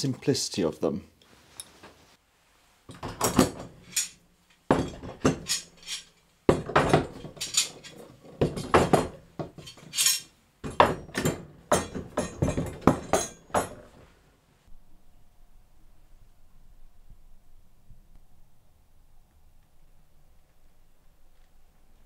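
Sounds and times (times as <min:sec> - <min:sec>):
metal clamps clanking: 0:02.9 - 0:14.0.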